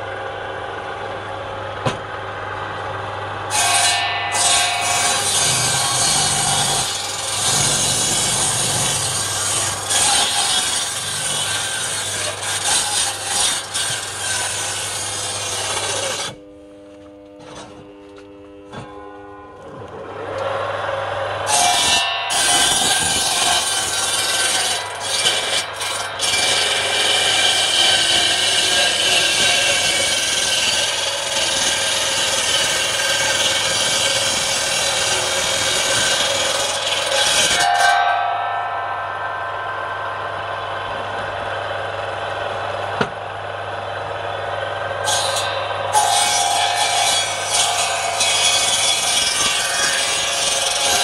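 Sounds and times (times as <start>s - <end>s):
circular saw cutting log: 3.4s - 16.4s, 20.0s - 51.0s.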